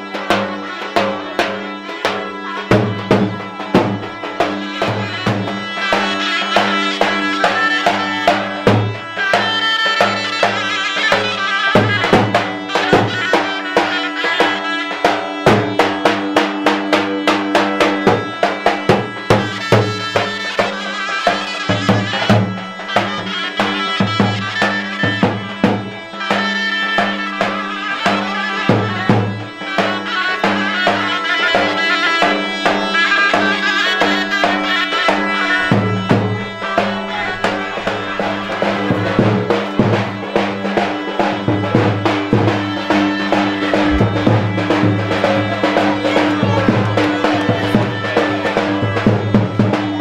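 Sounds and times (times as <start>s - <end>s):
wind instruments playing melody: 0.0s - 50.0s
large drum beating: 2.6s - 5.7s, 34.4s - 50.0s
held drone: 33.2s - 49.3s.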